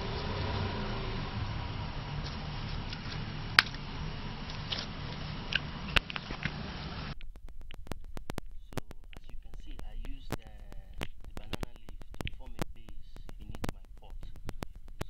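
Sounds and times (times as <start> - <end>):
low steady hum: 0.0 - 15.0
quick clicks: 5.5 - 15.0.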